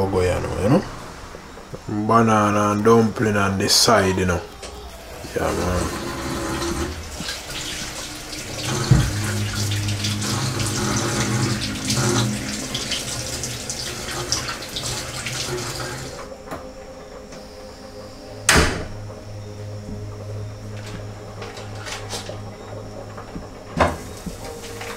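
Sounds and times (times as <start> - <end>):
tap water running into sink: 5.4 - 16.3.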